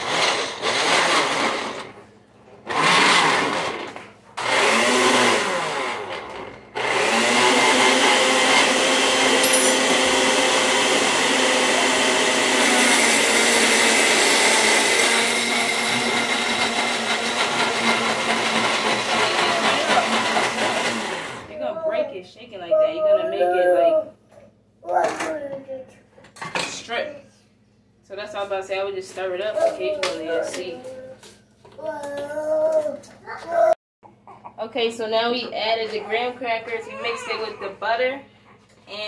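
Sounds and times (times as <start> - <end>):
blender grinding crackers: 0.0 - 2.0, 2.6 - 21.7.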